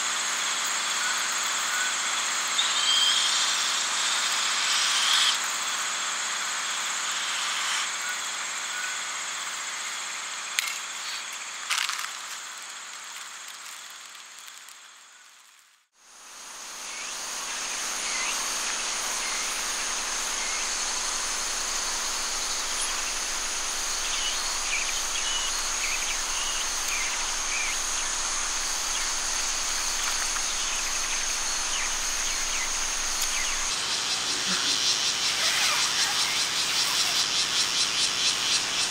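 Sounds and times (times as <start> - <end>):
constant hiss: 0.0 - 38.9
high insect drone: 0.0 - 38.9
insects chirring: 0.1 - 38.9
campfire crackles: 11.7 - 15.9.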